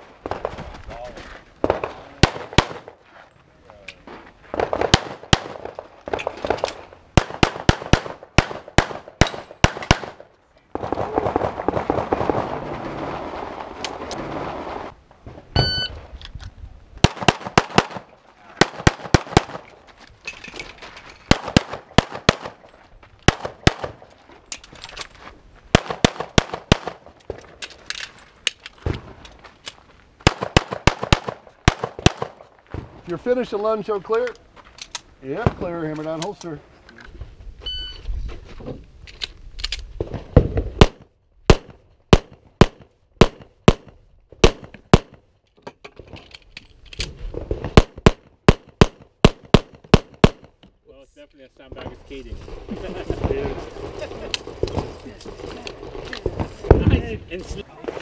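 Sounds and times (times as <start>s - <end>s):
rapid pistol shots: 7.2s - 10.2s, 17.0s - 18.0s, 21.3s - 22.6s, 23.3s - 24.0s, 25.8s - 27.0s, 30.2s - 32.4s
short electronic beep: 15.6s - 16.0s, 37.6s - 38.0s.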